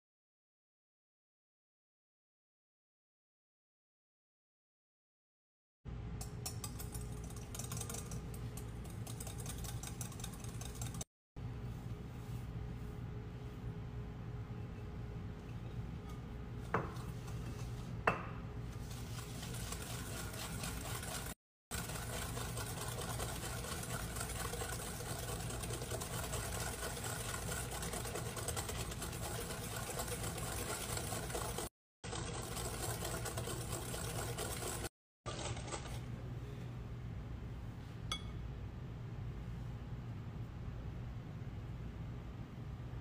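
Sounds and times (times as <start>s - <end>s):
whisk rattling in glass bowl: 6.2s - 11.0s, 18.7s - 36.0s.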